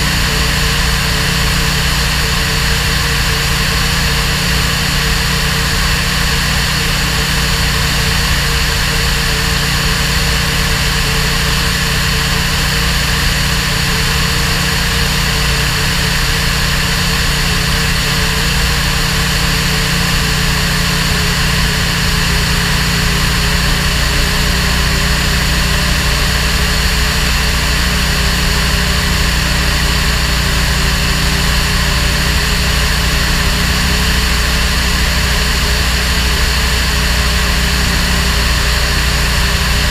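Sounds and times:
propeller aircraft engine drone: 0.0 - 39.9.

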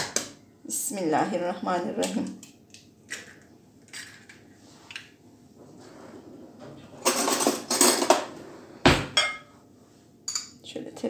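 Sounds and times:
ceramic plates clattering and scraping: 7.0 - 8.4.

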